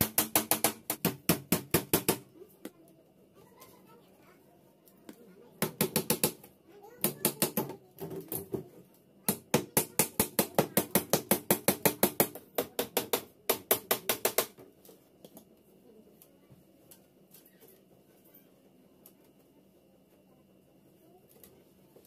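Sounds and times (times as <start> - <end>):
nails tapped into plywood: 0.0 - 2.2, 9.3 - 14.6.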